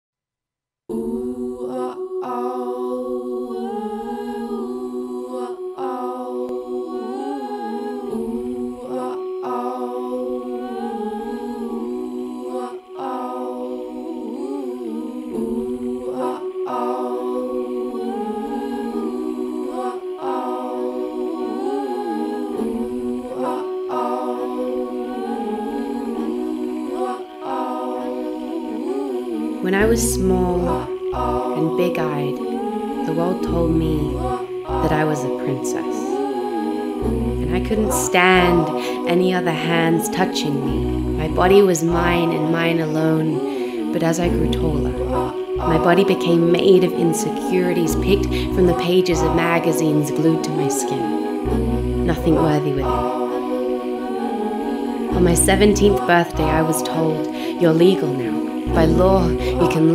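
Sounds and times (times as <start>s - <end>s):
wordless humming voices: 0.9s - 59.9s
held drone: 50.8s - 56.6s.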